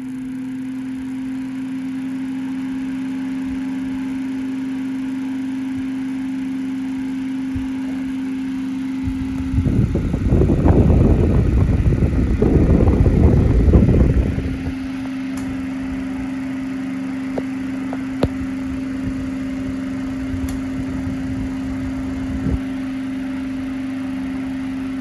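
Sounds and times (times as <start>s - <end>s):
electric fan humming: 0.0s - 25.0s
air buffeting microphone: 9.0s - 16.1s, 17.4s - 22.8s.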